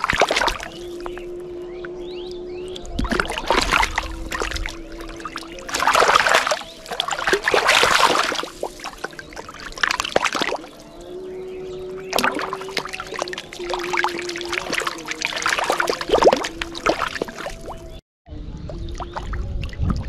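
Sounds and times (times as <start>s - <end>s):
fish thrashing and splashing: 0.0s - 1.3s, 2.9s - 11.0s, 12.1s - 17.9s.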